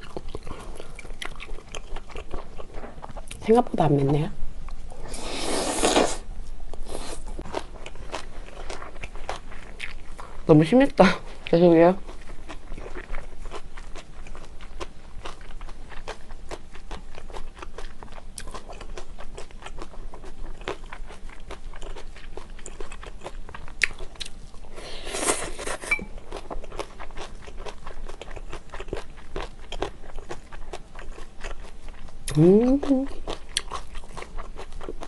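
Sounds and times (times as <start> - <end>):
crunchy bites and wet chewing: 33.1 - 35.0.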